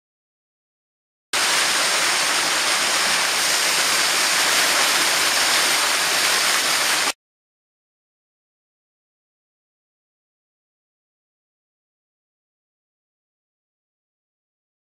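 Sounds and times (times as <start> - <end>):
stream rushing over rocks: 1.4 - 7.2.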